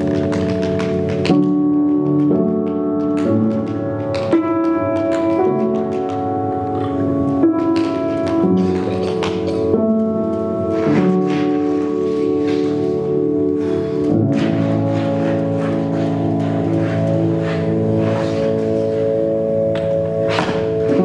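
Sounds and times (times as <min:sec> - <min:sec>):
tap shoes striking floor: 0:00.0 - 0:09.6.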